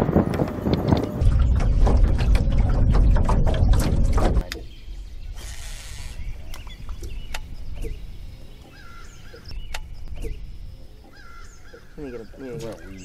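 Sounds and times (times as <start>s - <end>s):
steady low rumble: 0.0s - 13.0s
birds calling and chirping: 1.0s - 13.0s
sharp clicks: 5.4s - 8.0s, 8.6s - 10.4s.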